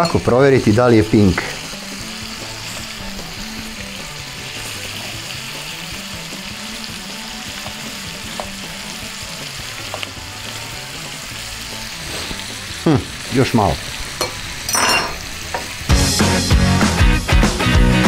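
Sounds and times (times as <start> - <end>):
meat sizzling in a frying pan: 0.0 - 18.0
utensils clicking on pan: 7.6 - 8.8, 9.8 - 10.2, 14.1 - 15.9.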